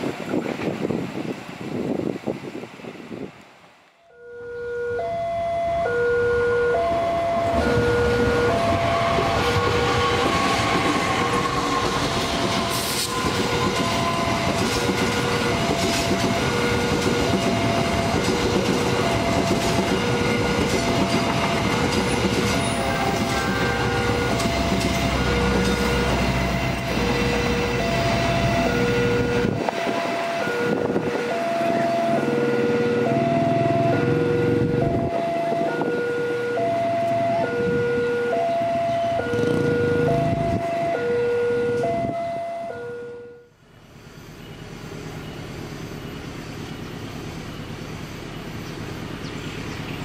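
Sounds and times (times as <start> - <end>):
train running over rails: 0.0 - 50.0
level crossing alarm ringing: 4.1 - 46.2.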